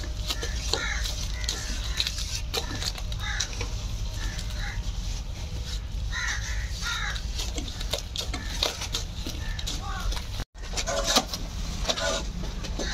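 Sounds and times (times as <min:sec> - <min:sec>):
crows cawing: 0:00.0 - 0:04.9, 0:06.1 - 0:10.3.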